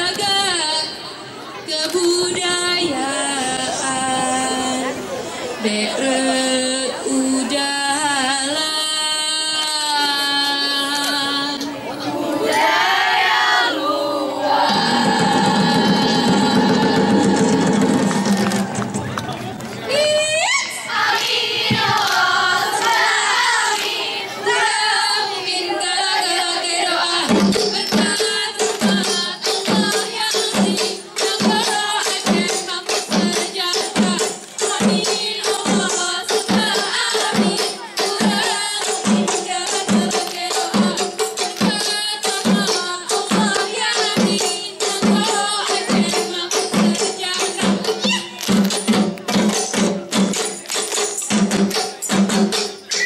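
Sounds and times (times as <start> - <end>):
voices chanting in unison: 10.3 - 19.0, 20.8 - 32.5, 34.0 - 41.0
steady percussion beat: 14.6 - 19.6, 27.2 - 53.0.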